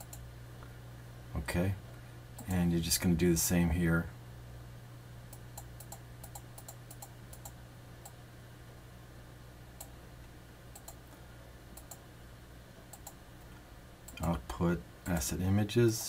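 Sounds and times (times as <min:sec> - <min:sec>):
computer mouse clicking: 0:00.0 - 0:00.2, 0:05.3 - 0:08.2, 0:10.7 - 0:11.0, 0:11.8 - 0:12.0, 0:12.9 - 0:13.2
steady low hum: 0:00.0 - 0:16.0.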